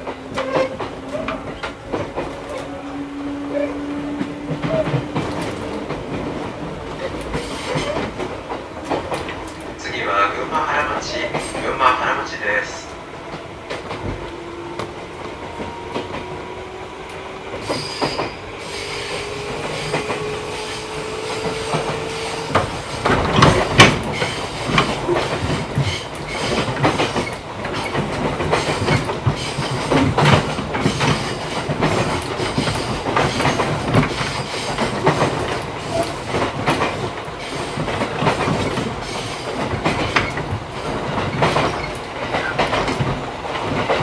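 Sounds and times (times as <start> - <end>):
wheels clattering over rail joints: 17.6 - 44.0.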